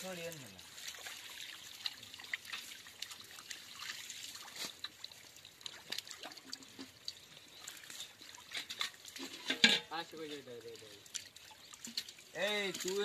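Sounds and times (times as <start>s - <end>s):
small wet clicks and splashes: 0.0s - 13.0s
water dribbling: 0.0s - 13.0s.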